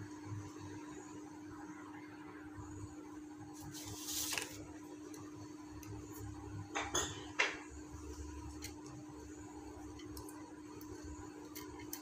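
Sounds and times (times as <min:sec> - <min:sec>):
steady low hum: 0:00.0 - 0:12.0
rustling scrapes: 0:03.6 - 0:04.6.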